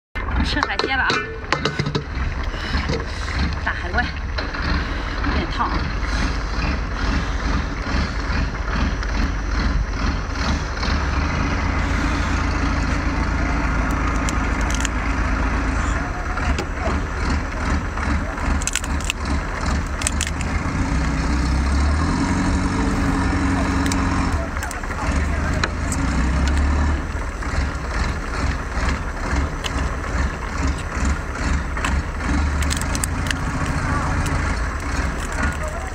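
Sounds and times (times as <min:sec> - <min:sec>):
low engine rumble: 0:00.0 - 0:35.9
lobster shell cracking: 0:13.8 - 0:15.0, 0:18.4 - 0:20.6, 0:29.4 - 0:35.9.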